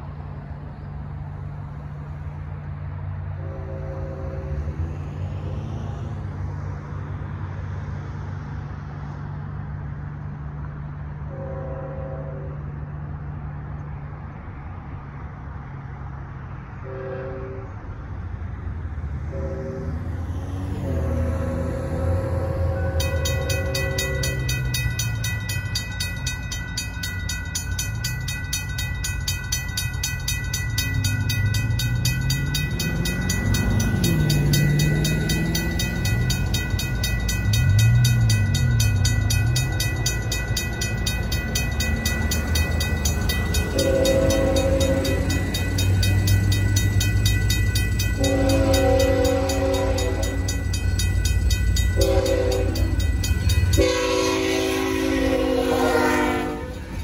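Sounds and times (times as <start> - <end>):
railroad crossing bell ringing: 0.0 - 13.6, 19.1 - 57.0
locomotive horn blasts: 3.3 - 5.0, 11.2 - 12.8, 16.8 - 18.0, 19.2 - 24.8, 43.6 - 45.6, 48.2 - 50.6, 51.9 - 57.0.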